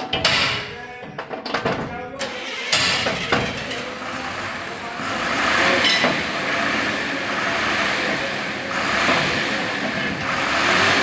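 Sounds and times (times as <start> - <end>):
vehicle engine running: 2.4 - 11.0.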